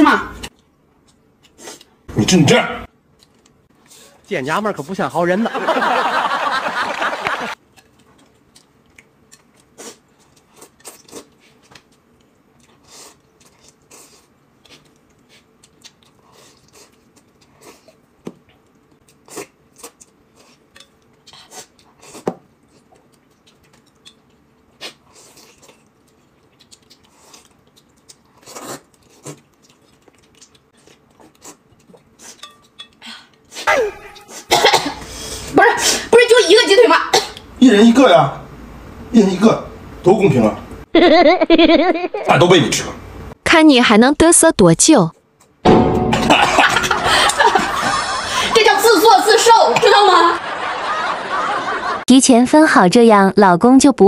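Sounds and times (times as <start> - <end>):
chewing and slurping: 7.6 - 34.5
chopsticks clicking on metal bowls: 32.4 - 33.0.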